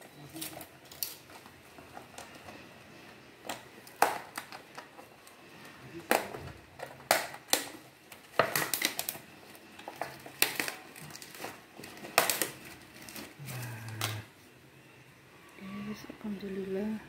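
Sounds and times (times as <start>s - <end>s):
plastic container crackling: 6.0s - 14.3s.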